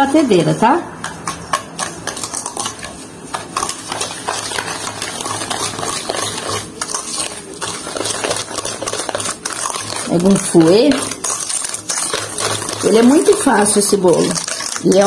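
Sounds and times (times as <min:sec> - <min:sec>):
hand whisk beating in a bowl: 0:01.0 - 0:15.0.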